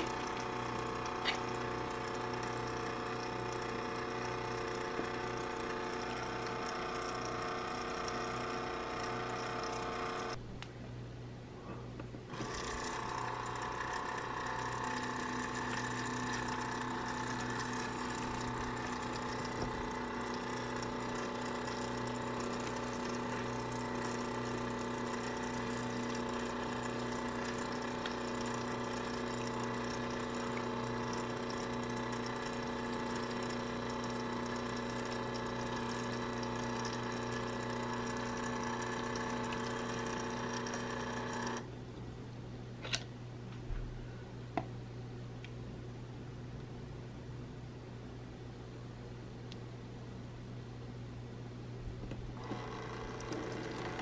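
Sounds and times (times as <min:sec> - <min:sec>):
water trickling from faucet: 0:00.0 - 0:10.4, 0:13.5 - 0:41.6, 0:53.2 - 0:54.0
small electric water pump humming: 0:00.0 - 0:10.7, 0:12.0 - 0:42.1, 0:51.8 - 0:54.0.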